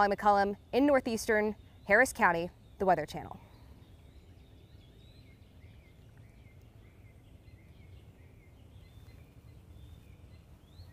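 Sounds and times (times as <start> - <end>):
birds chirping: 0.0 - 10.9
low outdoor rumble: 0.0 - 10.9.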